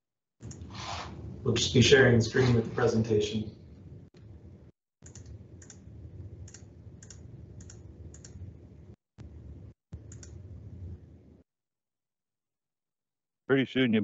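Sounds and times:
low steady hum: 0.4s - 11.4s
mouse and keyboard clicks: 5.0s - 5.8s.

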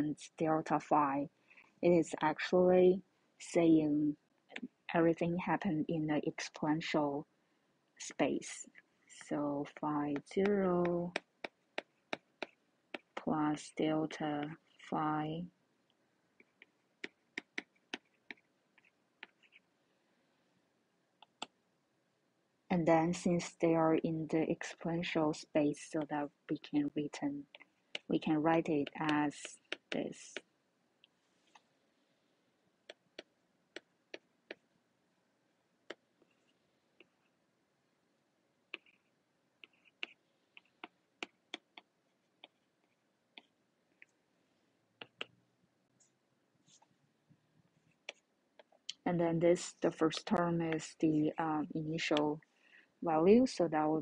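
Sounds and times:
stylus tapping on tablet screen: 10.1s - 13.3s, 16.4s - 19.6s, 27.4s - 30.5s, 32.8s - 34.7s, 38.7s - 39.0s, 39.6s - 42.6s, 45.0s - 45.4s, 48.0s - 49.0s.

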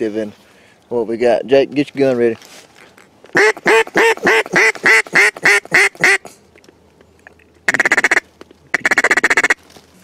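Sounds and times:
duck call quacks: 3.3s - 6.3s, 7.7s - 9.6s
duck call fast chatter: 3.4s - 6.2s, 7.7s - 9.6s.

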